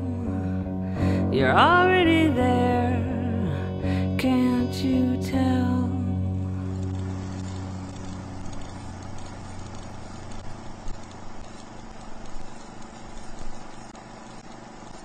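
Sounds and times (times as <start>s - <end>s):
final song chord: 0.0s - 9.1s
steady hiss: 0.0s - 15.0s.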